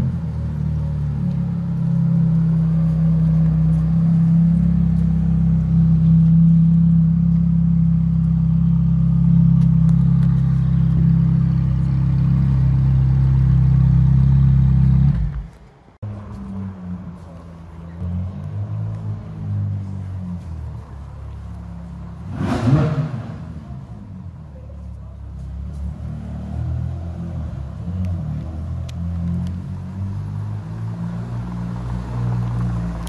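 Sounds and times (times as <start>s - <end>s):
car engine idling: 0.0s - 22.5s.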